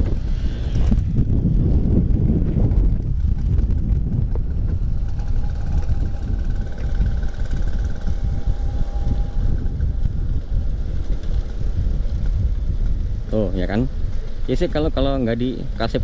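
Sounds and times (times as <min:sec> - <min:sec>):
scooter engine rumbling: 0:00.0 - 0:16.0
faint high whine: 0:05.0 - 0:11.5.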